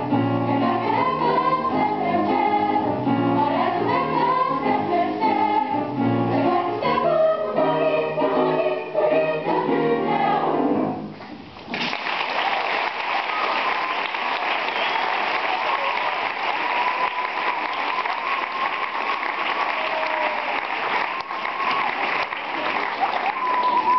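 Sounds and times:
choir singing: 0:00.2 - 0:11.1
audience clapping: 0:11.7 - 0:23.9.

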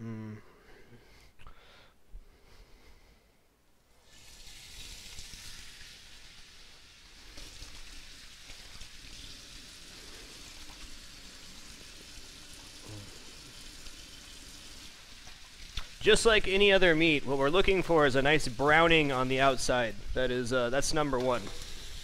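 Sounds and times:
chicken sizzling in hot oil: 0:04.0 - 0:19.5, 0:20.2 - 0:22.0.

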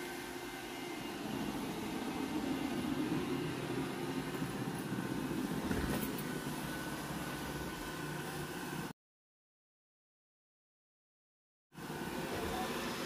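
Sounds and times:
robot vacuum humming: 0:00.0 - 0:08.9, 0:11.8 - 0:13.0.

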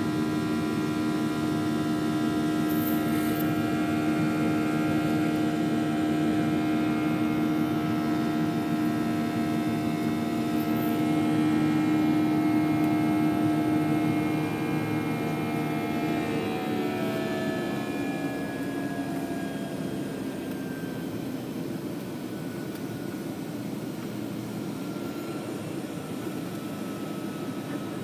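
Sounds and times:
jet engines droning: 0:00.0 - 0:28.0.

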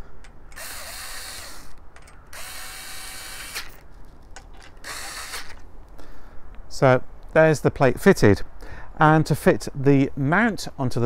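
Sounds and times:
electric screwdriver whirring: 0:00.6 - 0:03.8, 0:04.6 - 0:05.6.

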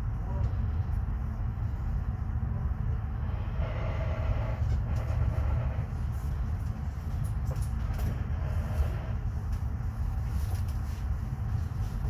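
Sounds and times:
train wheels rumbling on rail: 0:00.0 - 0:12.0.

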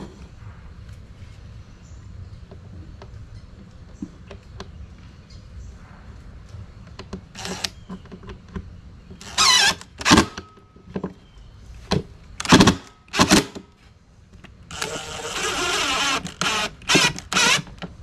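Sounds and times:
cordless drill motor whine: 0:09.2 - 0:10.2, 0:14.7 - 0:17.8.

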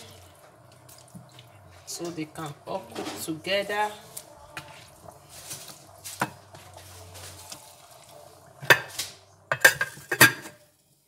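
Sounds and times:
metal clanking against a pot: 0:05.1 - 0:06.6, 0:08.6 - 0:10.6.

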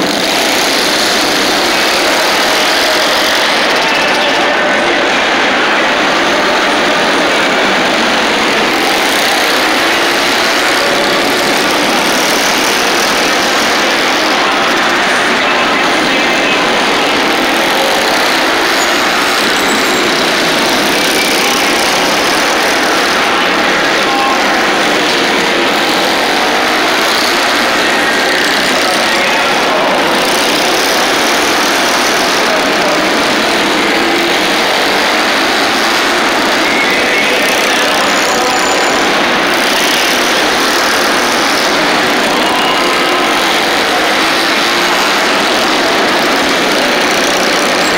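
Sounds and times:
racing motorcycle engines droning: 0:00.0 - 0:47.9.

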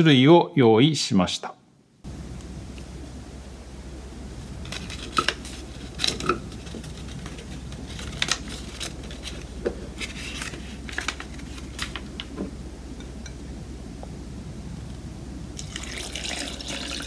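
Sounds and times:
paper rustling: 0:04.6 - 0:12.5.

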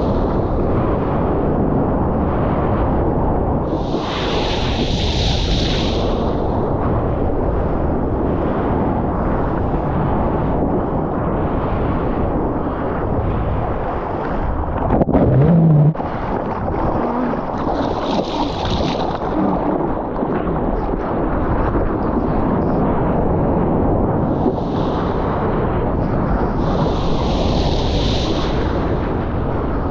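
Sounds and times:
wind buffeting microphone: 0:00.0 - 0:29.9
breaking surf roar: 0:12.8 - 0:22.4.

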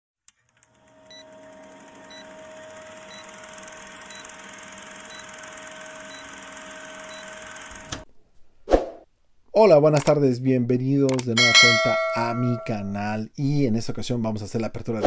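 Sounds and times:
film projector whir and hiss: 0:00.6 - 0:08.0.

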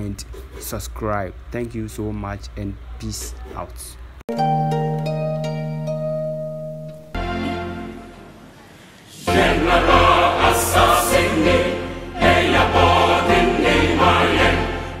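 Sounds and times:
music with voices singing: 0:09.2 - 0:15.0.

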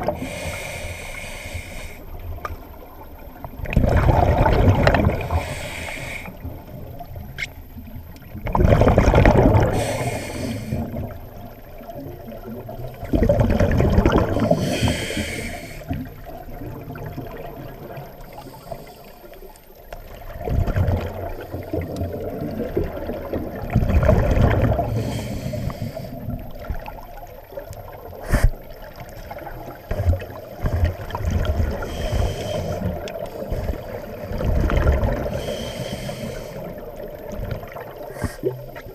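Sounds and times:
regulator gurgling: 0:03.1 - 0:18.2
diver exhaling bubbles: 0:03.6 - 0:06.6, 0:08.4 - 0:11.2, 0:13.0 - 0:17.9, 0:20.3 - 0:26.9.

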